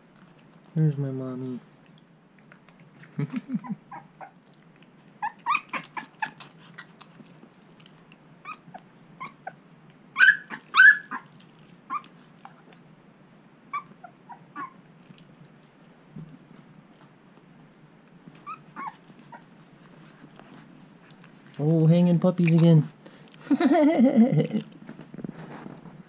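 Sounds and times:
puppy squealing and whimpering: 0:03.6 - 0:04.4, 0:05.2 - 0:07.0, 0:08.4 - 0:09.6, 0:10.2 - 0:11.3, 0:11.9 - 0:12.2, 0:13.7 - 0:14.8, 0:18.4 - 0:19.5.

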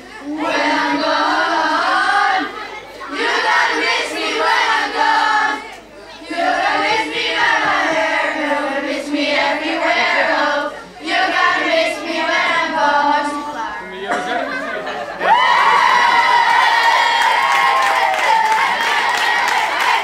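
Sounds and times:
children singing: 0:00.0 - 0:14.6.

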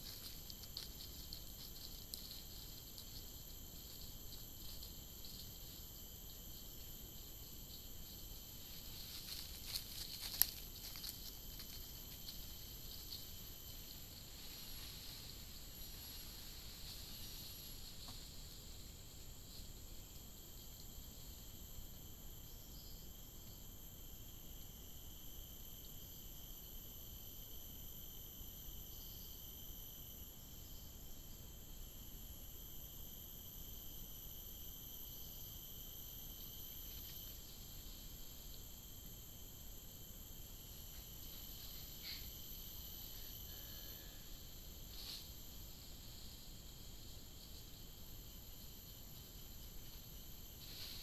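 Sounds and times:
rainforest insects droning: 0:00.0 - 0:51.0.

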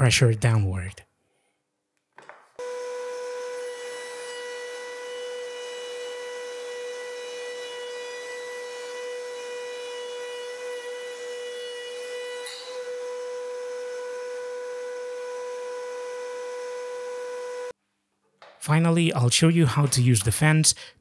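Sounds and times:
router motor whining: 0:02.6 - 0:17.8.

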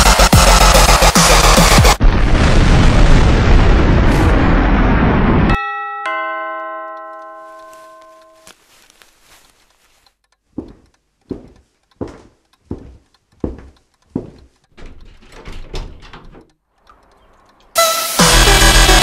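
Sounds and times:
doorbell chime: 0:05.6 - 0:08.5
footsteps on hard floor: 0:07.5 - 0:15.2.

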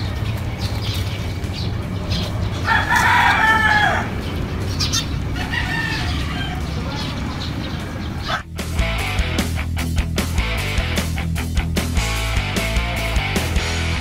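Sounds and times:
rooster crowing: 0:02.6 - 0:04.2, 0:05.2 - 0:06.9.

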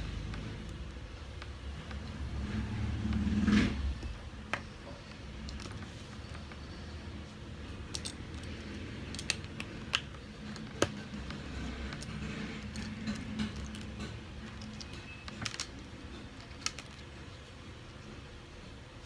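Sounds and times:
plastic bricks clicking and clattering: 0:07.8 - 0:17.2.

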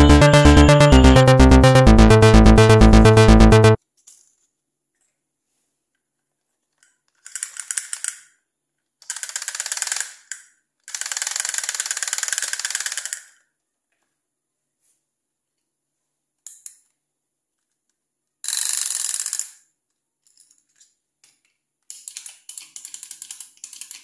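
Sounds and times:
electronic background music: 0:00.0 - 0:03.8.

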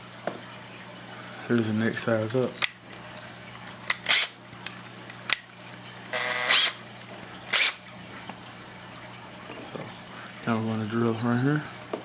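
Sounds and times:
drill chuck clicking and ratcheting: 0:03.9 - 0:04.3, 0:06.2 - 0:06.8, 0:07.5 - 0:07.8.

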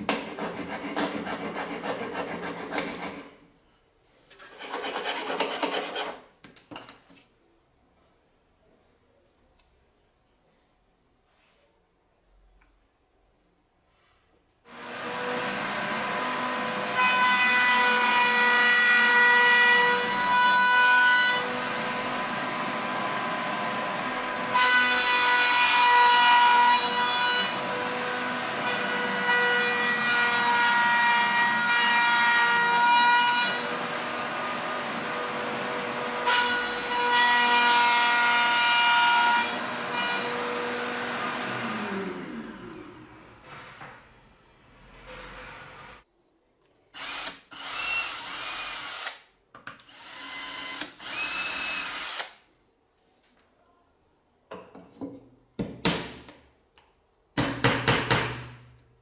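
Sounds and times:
router running: 0:14.7 - 0:18.3, 0:39.5 - 0:43.3
router cutting wood: 0:14.7 - 0:43.3, 0:49.9 - 0:52.4.

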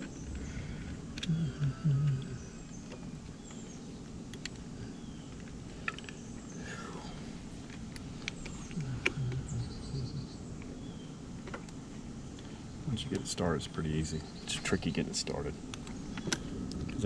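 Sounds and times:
small parts clicking and tapping: 0:00.0 - 0:06.6, 0:07.6 - 0:09.5, 0:15.7 - 0:17.0
steady low hum: 0:00.0 - 0:17.0
low voice murmur: 0:01.2 - 0:02.5, 0:08.7 - 0:10.4.

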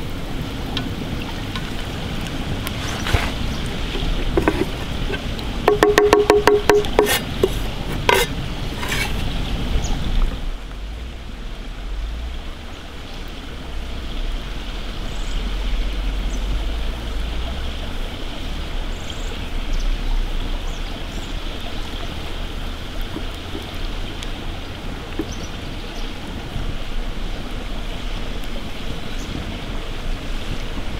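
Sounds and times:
campfire rumbling and crackling: 0:00.0 - 0:30.9
wind on microphone: 0:00.0 - 0:30.9
knife chopping on wooden board: 0:05.7 - 0:09.1.

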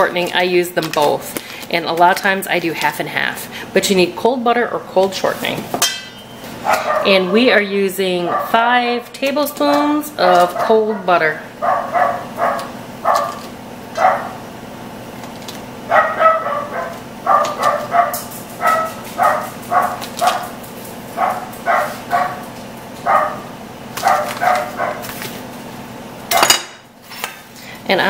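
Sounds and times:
dogs barking: 0:06.5 - 0:09.2, 0:10.2 - 0:14.5, 0:15.8 - 0:25.2.

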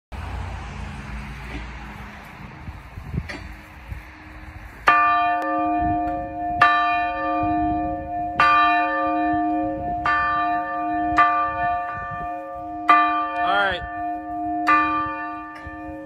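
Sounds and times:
church bell ringing: 0:03.6 - 0:16.0.

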